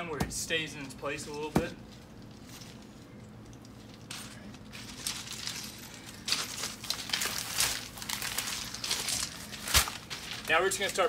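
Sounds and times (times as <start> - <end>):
rustling handling sounds: 0.7 - 11.0
footsteps crunching on gravel: 3.7 - 11.0.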